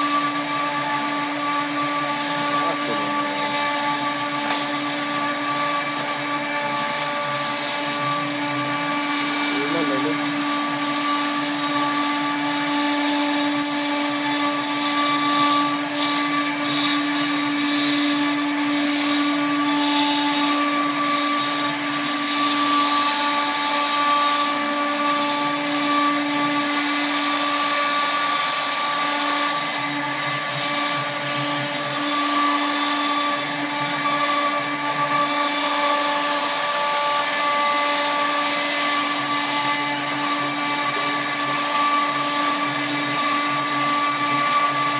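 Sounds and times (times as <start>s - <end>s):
cnc router spindle whine: 0.0s - 44.9s
bit cutting wood hiss: 9.3s - 36.2s.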